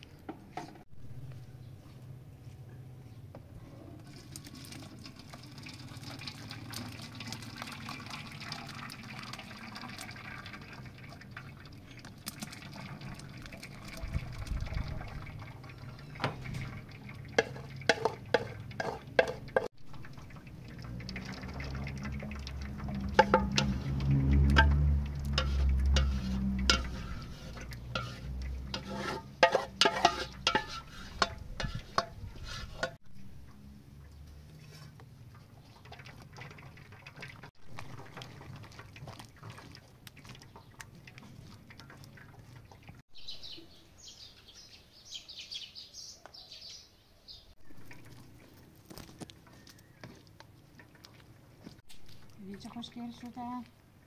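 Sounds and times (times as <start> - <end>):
wooden spoon scraping pot: 17.4 - 19.7, 21.6 - 33.0.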